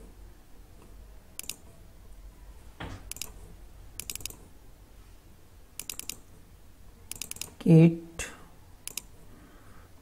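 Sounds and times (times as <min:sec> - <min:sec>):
computer mouse clicking: 0:00.8 - 0:01.6, 0:03.1 - 0:03.4, 0:04.0 - 0:04.4, 0:05.8 - 0:06.2, 0:07.1 - 0:07.6, 0:08.8 - 0:09.2.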